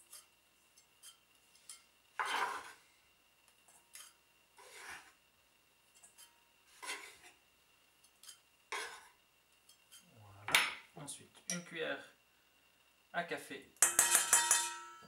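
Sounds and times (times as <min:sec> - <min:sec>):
utensil stirring in metal bowl: 0:00.0 - 0:02.8, 0:06.0 - 0:07.4, 0:08.0 - 0:10.1, 0:13.8 - 0:14.7
knife scraping on wooden board: 0:01.0 - 0:02.8, 0:04.0 - 0:05.2, 0:06.1 - 0:07.4, 0:08.2 - 0:09.2.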